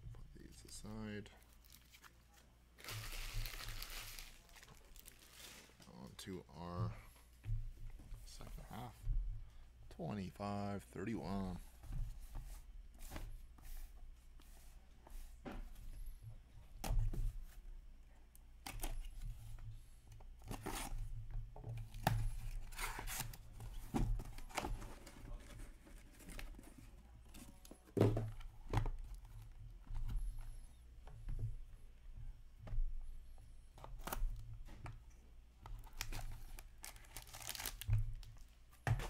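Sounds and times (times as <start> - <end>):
cardboard and plastic wrap tearing: 2.8 - 5.8, 35.9 - 38.2.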